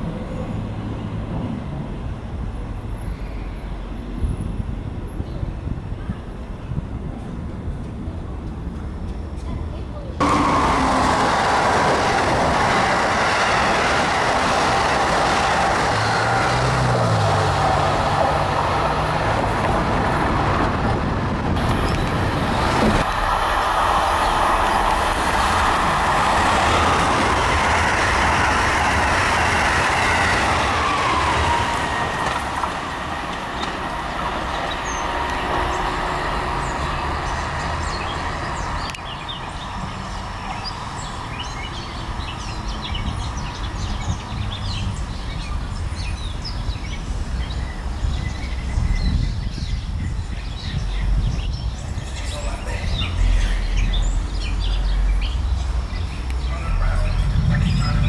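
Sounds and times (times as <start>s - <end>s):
distant train rumble: 0.0s - 58.0s
train passing at speed: 0.0s - 58.0s
train whine: 10.2s - 45.0s, 51.8s - 58.0s
birds chirping: 21.6s - 58.0s.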